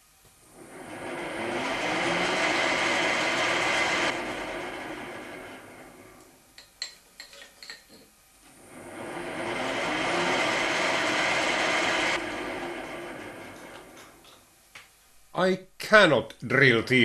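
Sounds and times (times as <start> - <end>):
lathe spindle drilling steel: 0.5 - 6.3, 8.6 - 14.4.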